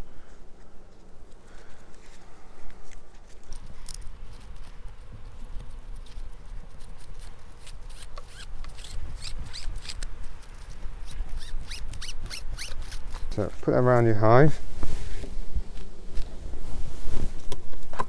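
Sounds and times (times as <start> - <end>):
nylon strap rustling and clicking: 1.3 - 13.4.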